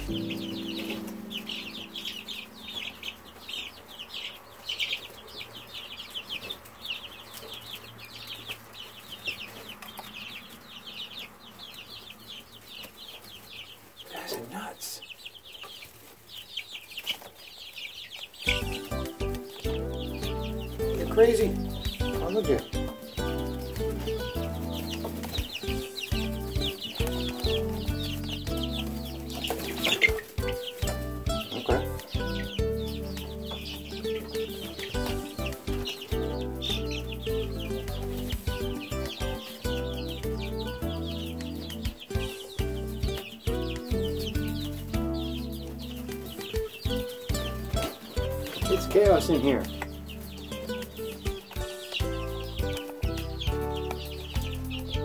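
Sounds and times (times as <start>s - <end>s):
background music with low notes: 0.0s - 4.2s, 18.4s - 55.0s
chicks peeping: 0.0s - 55.0s.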